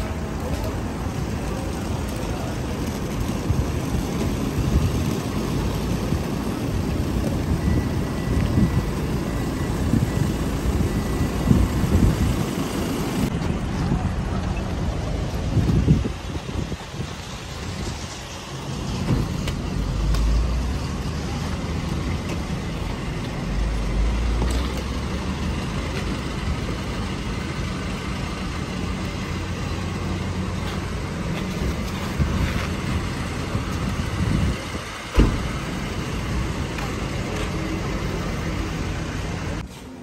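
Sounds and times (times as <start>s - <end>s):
van engine idling: 0.0s - 39.9s
wind buffeting microphone: 1.1s - 19.8s, 31.7s - 36.5s
loud thump: 35.1s - 35.5s.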